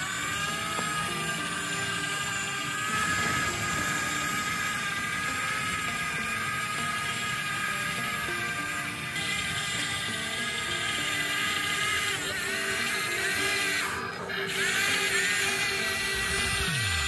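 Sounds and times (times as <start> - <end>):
toy excavator electric whine: 0.0 - 17.0
low mechanical rumble: 15.8 - 17.0.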